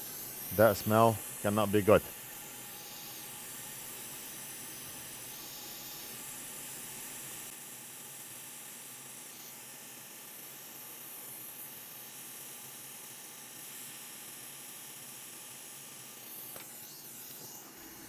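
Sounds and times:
hot air station hissing: 0.0s - 7.6s, 8.2s - 18.0s.

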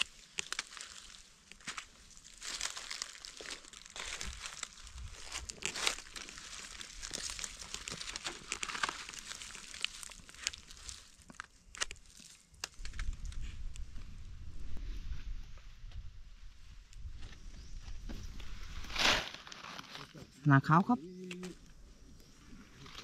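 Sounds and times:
dry leaves rustling and crackling: 0.0s - 13.8s, 18.4s - 20.2s.

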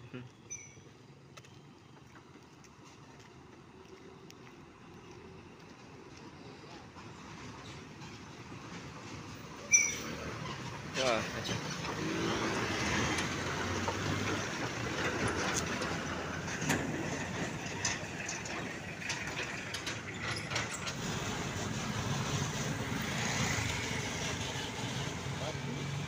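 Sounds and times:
truck diesel engine rumbling: 3.4s - 26.0s
knocks and rattles: 10.4s - 23.8s.

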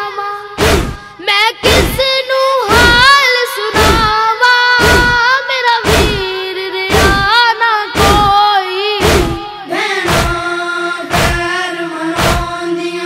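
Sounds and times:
boy chanting a lament: 0.0s - 13.0s
deep heavy thumps: 0.6s - 2.1s, 2.7s - 3.2s, 3.8s - 4.2s, 4.8s - 7.4s, 8.0s - 8.4s, 9.0s - 9.4s, 10.1s - 10.4s, 11.1s - 11.5s, 12.2s - 12.6s.

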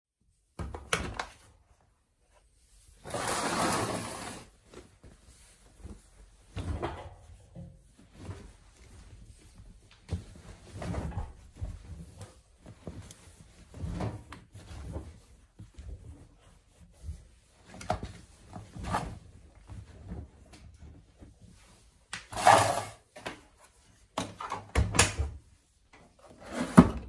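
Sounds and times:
fabric rustling: 1.7s - 22.8s.

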